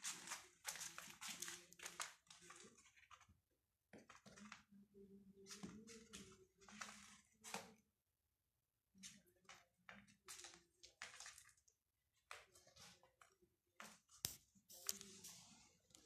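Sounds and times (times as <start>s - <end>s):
kitten scratching in cat litter: 0.0s - 4.7s, 5.4s - 7.8s, 12.2s - 16.0s.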